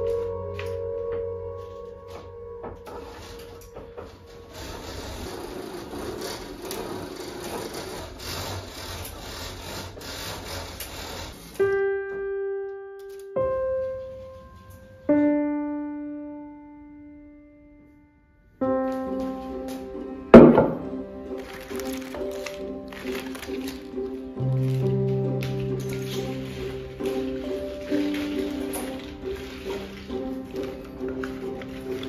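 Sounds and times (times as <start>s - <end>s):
soft piano notes: 0.0s - 7.8s, 11.5s - 32.0s.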